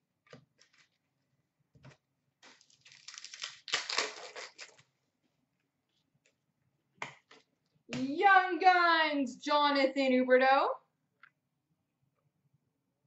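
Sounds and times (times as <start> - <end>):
foil wrapper tearing and crinkling: 2.4 - 4.8.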